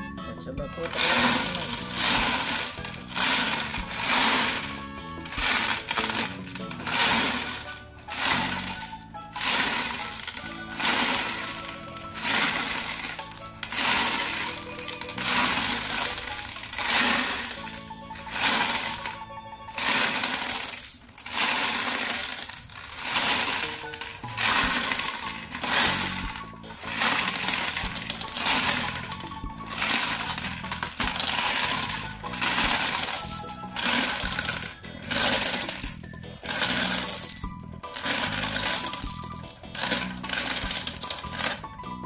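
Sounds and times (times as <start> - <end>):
background music: 0.0 - 42.0
glass marbles clattering: 0.7 - 41.7.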